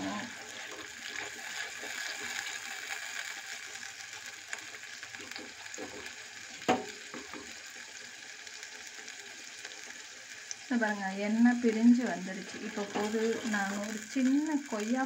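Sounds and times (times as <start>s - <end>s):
paste sizzling in oil: 0.0s - 15.0s
spatula knocking on pot: 6.6s - 7.5s
wooden spatula scraping pot: 12.5s - 13.6s.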